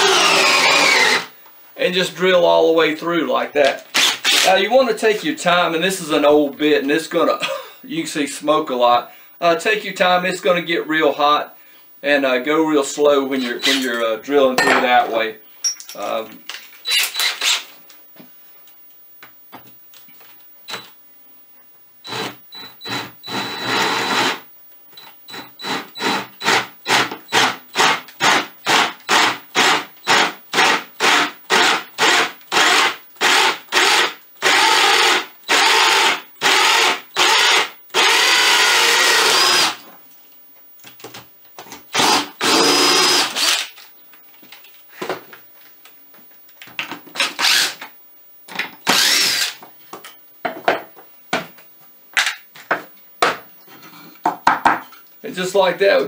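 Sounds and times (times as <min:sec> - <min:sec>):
cordless drill boring through wood: 0:00.0 - 0:01.3, 0:04.0 - 0:04.5, 0:16.9 - 0:17.6, 0:22.0 - 0:24.4, 0:25.3 - 0:39.8, 0:41.9 - 0:43.7, 0:47.2 - 0:47.8, 0:48.9 - 0:49.6.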